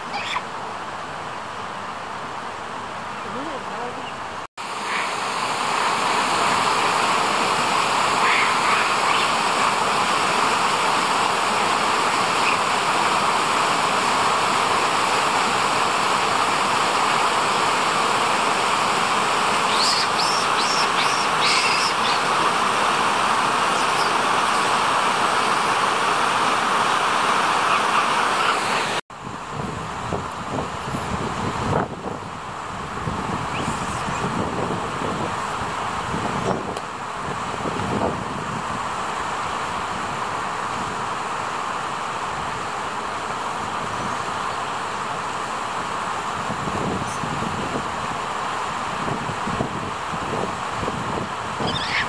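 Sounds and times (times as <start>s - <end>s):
short high calls: 0.0s - 0.5s, 8.1s - 9.8s, 19.6s - 22.6s, 23.5s - 24.8s, 51.6s - 52.0s
mountain stream rushing over boulders: 0.0s - 52.0s.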